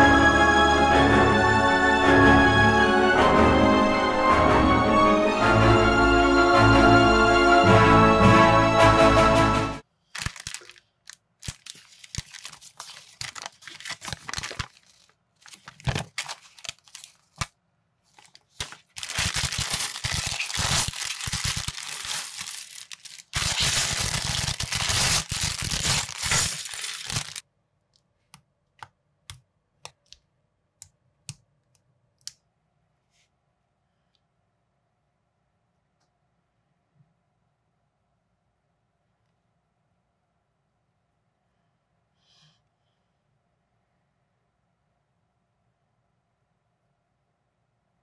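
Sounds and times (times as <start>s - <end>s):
plastic bags crinkling: 10.1s - 17.5s, 18.1s - 27.4s
plastic being torn open: 10.1s - 17.5s, 18.2s - 27.4s.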